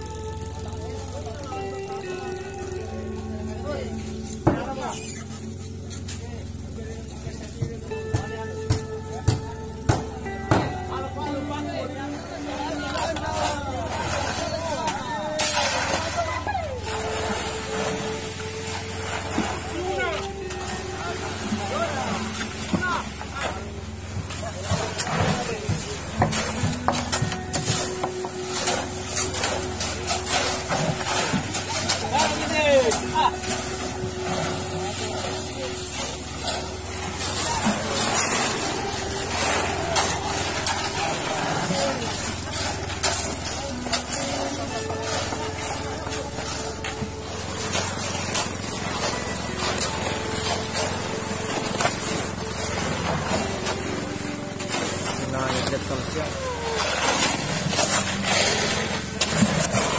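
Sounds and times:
small engine running: 0.0s - 8.1s
steady motor hum: 0.0s - 59.9s
shovels scraping concrete mix: 3.5s - 7.7s, 10.3s - 59.9s.

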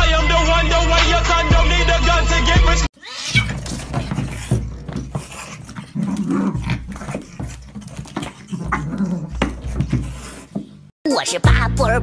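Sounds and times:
small dog growling: 3.1s - 10.6s
scuffling knocks on hard floor: 3.4s - 10.9s.

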